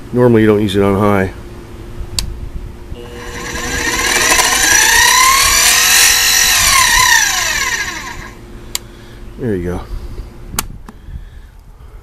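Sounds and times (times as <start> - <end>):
motor and spindle gears whining: 3.0 - 8.4.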